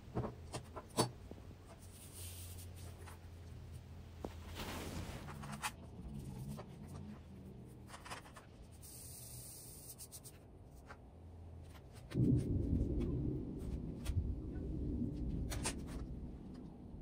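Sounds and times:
low rumble: 11.3s - 17.0s.

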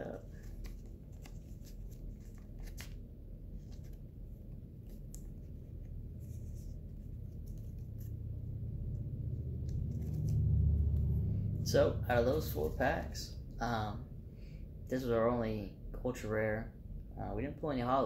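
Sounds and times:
low hum: 0.0s - 17.6s
card sliding into plastic sleeve: 0.4s - 3.0s.

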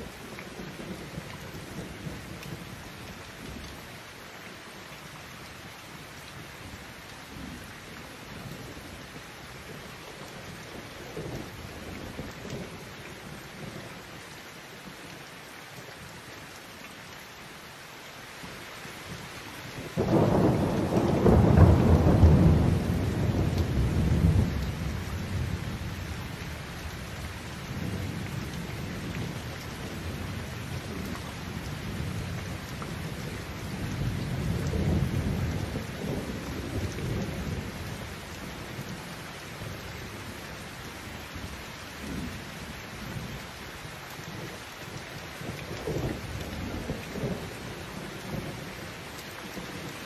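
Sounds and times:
heavy rain pouring: 0.0s - 50.0s
thunder cracking and rolling: 20.0s - 25.6s.

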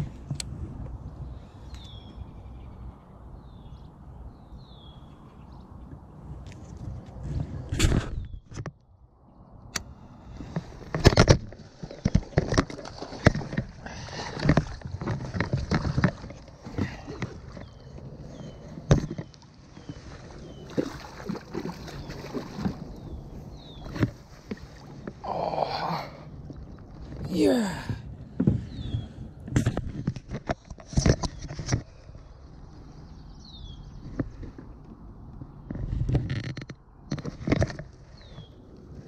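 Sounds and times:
water sloshing: 10.3s - 28.7s
fish splashing and thrashing: 10.4s - 27.8s.

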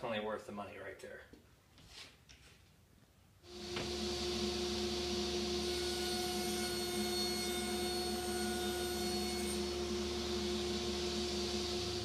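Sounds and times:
plywood cut by saw blade: 3.5s - 12.0s
table saw motor whine: 3.5s - 12.0s.

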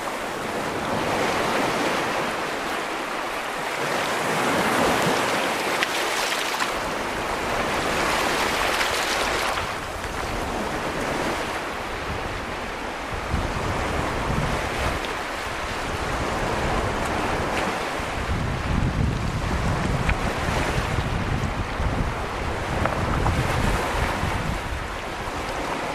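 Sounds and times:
surf washing over stony beach: 0.0s - 25.9s
wind rumble on microphone: 6.6s - 25.9s.

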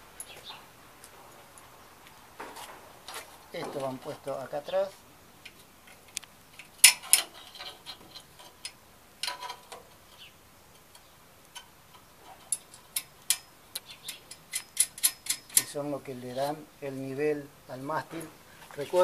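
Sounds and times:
metal clicks and taps of screws: 5.4s - 15.8s.

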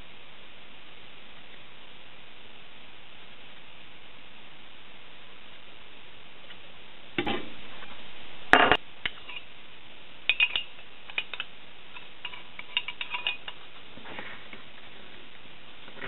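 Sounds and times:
metal parts clattering: 12.0s - 13.6s.

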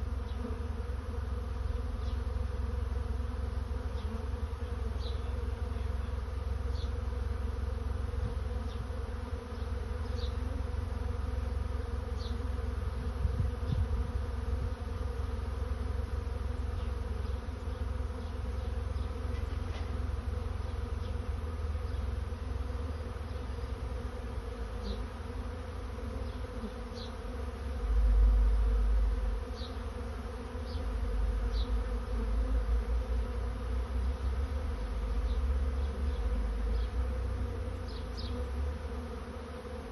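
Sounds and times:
bees buzzing: 0.0s - 39.9s
low rumble on microphone: 12.9s - 14.9s.

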